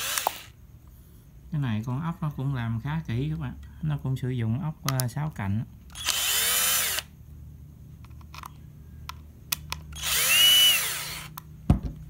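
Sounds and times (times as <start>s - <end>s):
power driver motor whirring: 0.0s - 0.6s, 5.9s - 7.1s, 9.9s - 11.4s.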